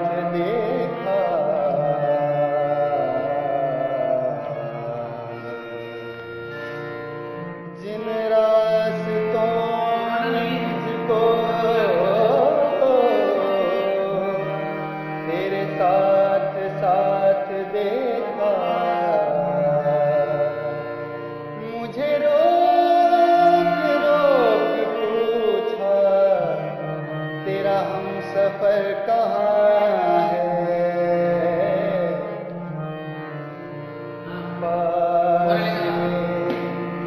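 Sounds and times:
man singing ornamented phrases: 0.0s - 5.6s, 7.8s - 14.6s, 21.6s - 32.7s, 34.3s - 37.0s.

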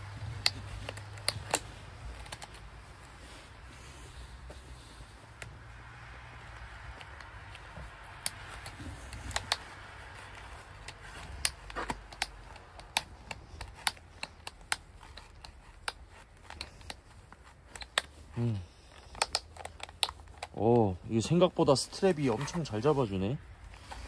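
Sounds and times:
ratchet buckle clicking: 7.0s - 20.6s.

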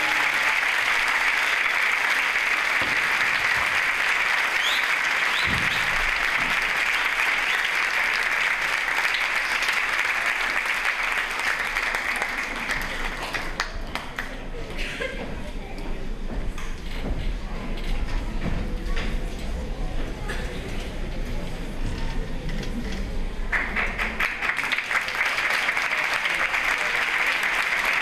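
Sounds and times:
audience applauding: 0.0s - 14.4s, 23.5s - 28.0s.

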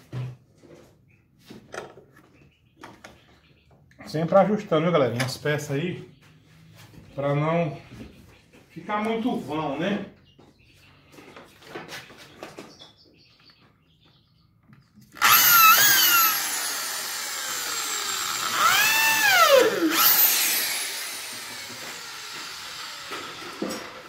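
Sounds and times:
electric drill whine: 15.2s - 24.0s.

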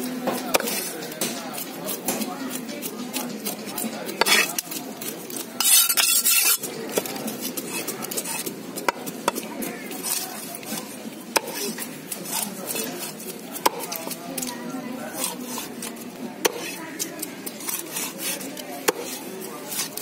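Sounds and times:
knife striking fish on wooden block: 0.5s - 4.6s, 11.4s - 11.7s, 12.8s - 14.5s, 16.4s - 16.8s, 17.5s - 20.0s
rasping rush of knife cutting: 0.5s - 20.0s.

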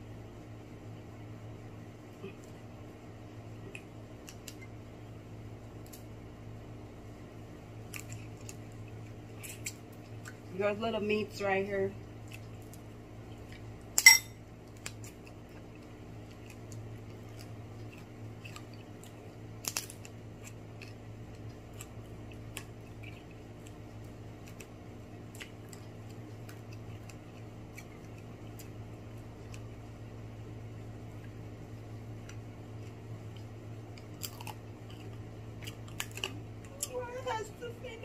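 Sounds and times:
steady low hum: 0.0s - 38.0s
shell cracking: 19.6s - 22.8s.

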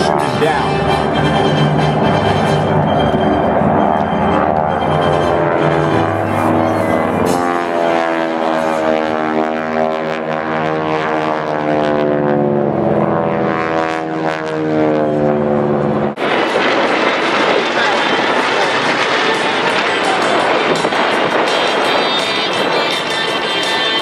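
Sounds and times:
propeller airplane engine drone: 0.0s - 24.0s
rough noisy rush: 15.3s - 24.0s.

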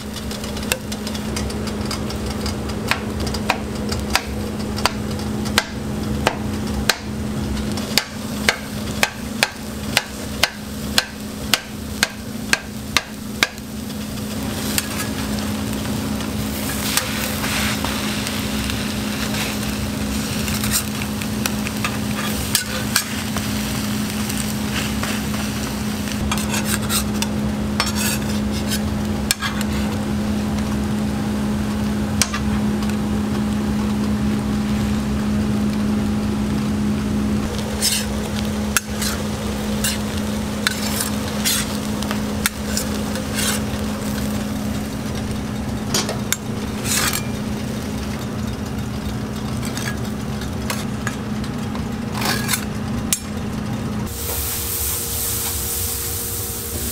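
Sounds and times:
spatula chopping on metal griddle: 0.0s - 15.5s, 16.5s - 23.5s, 26.2s - 29.9s, 37.6s - 44.3s, 45.9s - 47.4s, 50.6s - 51.2s, 52.1s - 53.2s
food sizzling on griddle: 0.0s - 56.9s
steady low hum: 0.0s - 56.9s
spatula taps and scrapes: 26.3s - 29.8s.

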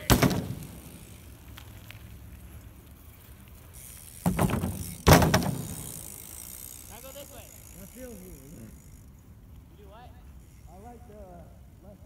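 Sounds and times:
bike hitting a ramp: 0.0s - 1.2s, 4.0s - 6.6s
bike landing impact: 0.0s - 1.3s, 4.0s - 6.8s.

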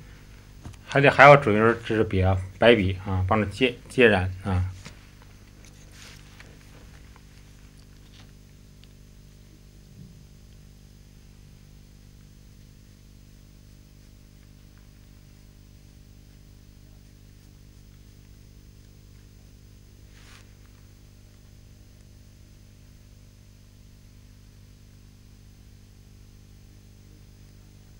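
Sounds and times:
electrical mains hum: 0.0s - 27.9s
faint hiss: 0.0s - 27.9s.

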